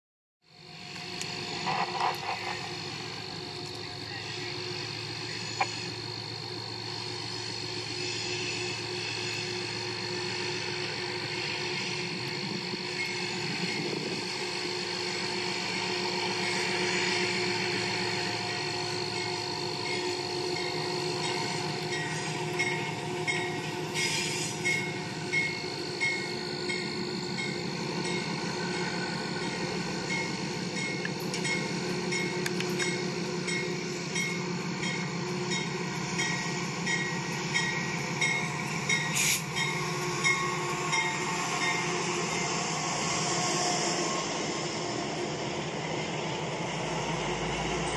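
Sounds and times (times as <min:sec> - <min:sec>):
wheels clicking on track: 0:29.4 - 0:41.2.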